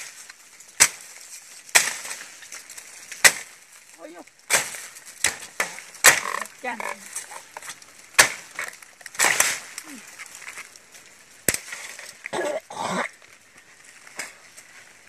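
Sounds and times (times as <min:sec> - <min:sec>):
bamboo and dry leaves rustling: 0:00.0 - 0:15.0
machete striking bamboo: 0:00.8 - 0:03.6, 0:04.5 - 0:06.5, 0:08.1 - 0:10.0, 0:11.4 - 0:12.0.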